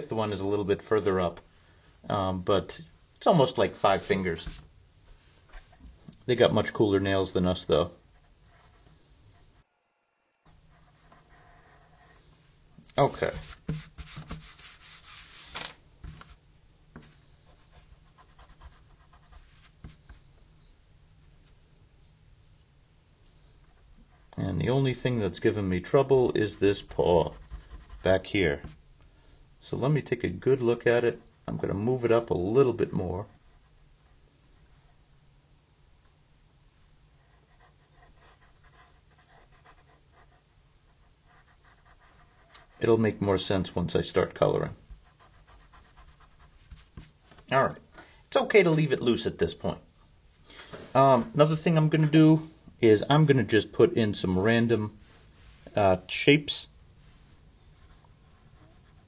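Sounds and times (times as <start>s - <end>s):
room hum: 0.0s - 59.0s
pencil scratching on paper: 10.7s - 12.2s, 13.2s - 15.5s, 17.0s - 20.3s, 26.5s - 28.8s, 37.2s - 42.8s, 45.0s - 47.1s, 57.8s - 59.0s.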